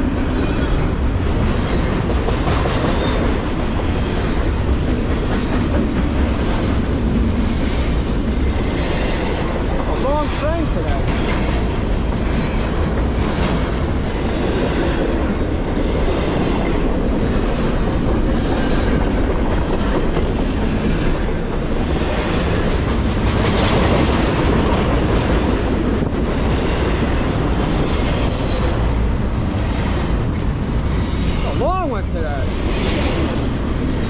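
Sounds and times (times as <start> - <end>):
clickety-clack over rail joints: 0.0 - 34.0
train wheels rumbling on rails: 0.0 - 34.0
high wheel squeal: 20.5 - 22.7, 28.8 - 29.2, 32.0 - 33.5.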